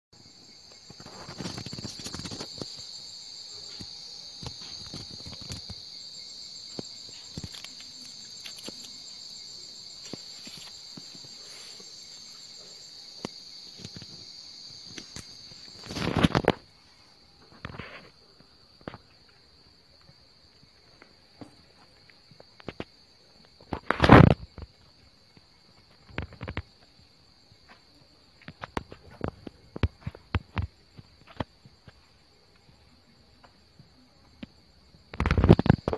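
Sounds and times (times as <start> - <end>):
night insects chirring: 0.2 - 35.9
loud scuffing rustle: 9.8 - 12.6.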